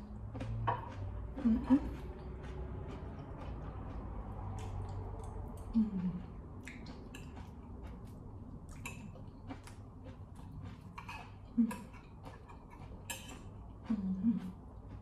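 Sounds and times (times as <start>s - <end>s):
person chewing: 0.0s - 15.0s
person humming: 5.8s - 6.2s.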